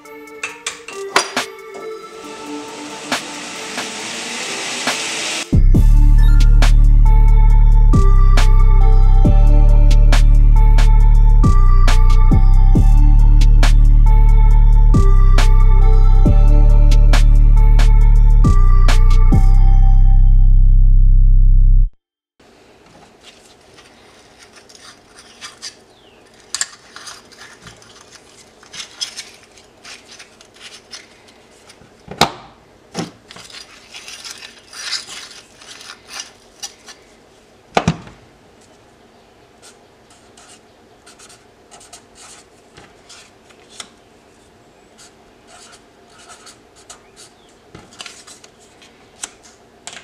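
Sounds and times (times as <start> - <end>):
steel bars clinking and scraping: 24.1 - 31.8, 33.3 - 37.1.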